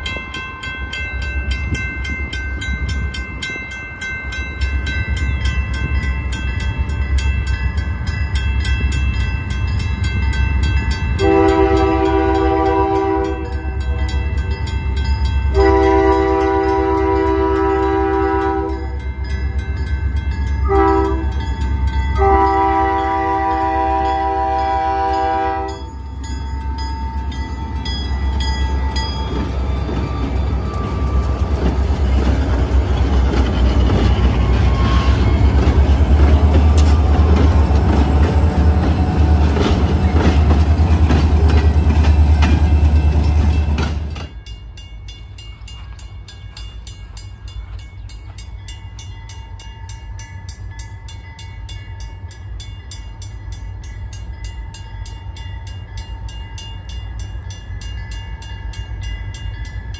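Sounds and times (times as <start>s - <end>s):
locomotive horn blasts: 11.2s - 14.2s, 15.5s - 19.0s, 20.6s - 21.4s, 22.1s - 25.9s
wheels clicking over rail joints: 26.1s - 44.6s.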